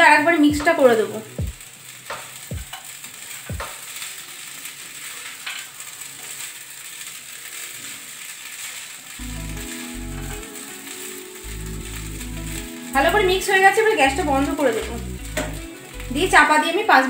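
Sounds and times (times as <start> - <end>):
food sizzling lightly: 0.0 - 17.0.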